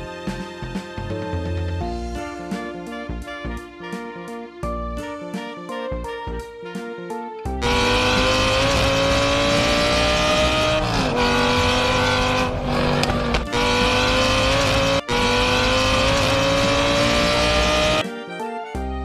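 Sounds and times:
race car engine revving: 0:07.6 - 0:18.0.

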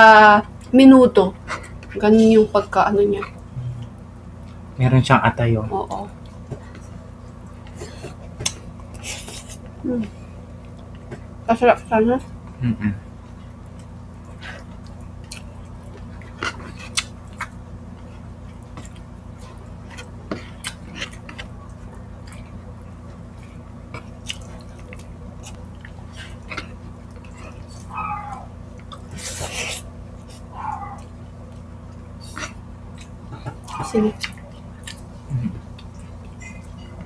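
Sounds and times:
low electrical hum: 0:00.0 - 0:37.0
wet chewing and lip smacks: 0:13.3 - 0:28.0, 0:28.7 - 0:37.0.

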